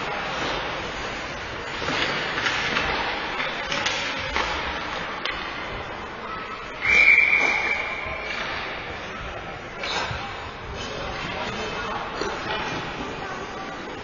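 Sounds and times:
hockey sticks and puck clacking: 0:00.0 - 0:05.7, 0:06.8 - 0:09.1
referee's whistle: 0:06.8 - 0:08.0.

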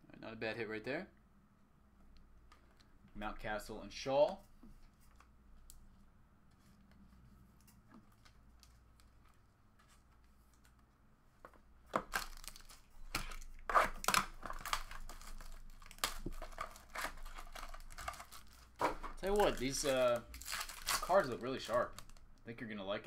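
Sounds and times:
plastic wrap crinkling and tearing: 0:12.0 - 0:22.4.

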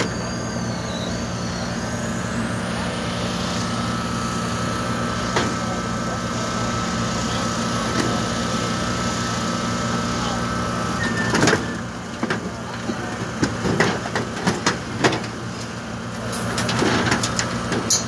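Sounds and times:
faint steady whine: 0:00.0 - 0:07.8
heavy equipment engine idling: 0:00.0 - 0:18.0.

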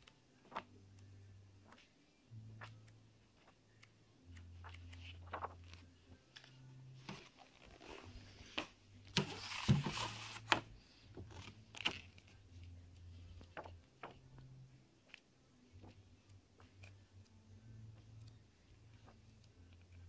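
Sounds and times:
pages flipping: 0:00.0 - 0:00.7, 0:01.6 - 0:01.9, 0:02.6 - 0:14.4, 0:18.0 - 0:20.0
paper rustling and sliding: 0:04.6 - 0:05.8, 0:06.4 - 0:12.3.

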